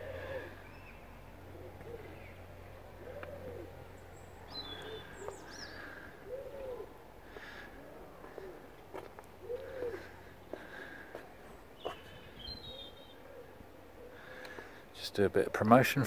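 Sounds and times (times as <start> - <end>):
dove cooing: 0.0 - 14.8
small bird chirping: 3.9 - 6.0.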